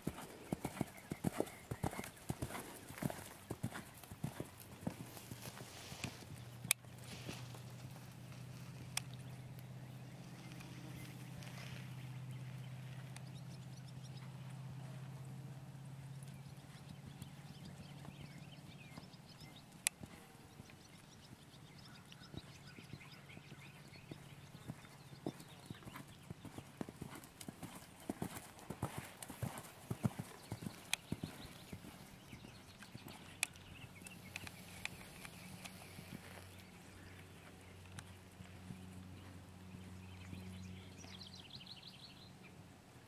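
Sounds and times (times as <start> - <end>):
sharp clicks: 33.2 - 35.8.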